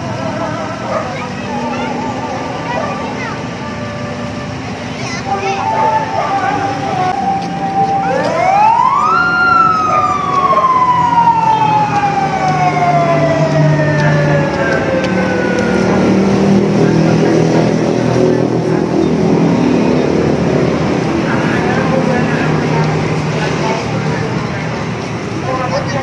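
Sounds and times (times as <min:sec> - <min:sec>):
siren winding up and down: 0:07.2 - 0:16.4.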